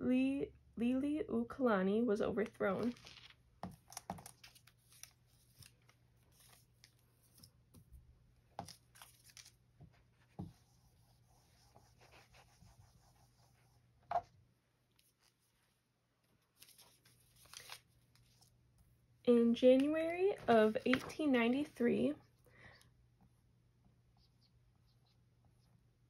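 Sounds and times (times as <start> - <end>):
paper peeling: 2.8 - 7.8, 8.6 - 9.6, 16.5 - 18.5.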